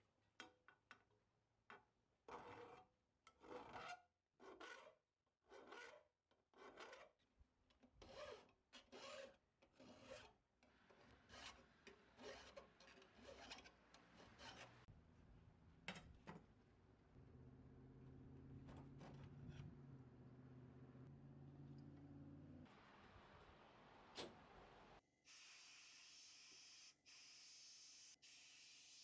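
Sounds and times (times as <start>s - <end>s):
hand file rasping on metal: 3.4s - 7.2s, 8.0s - 14.9s.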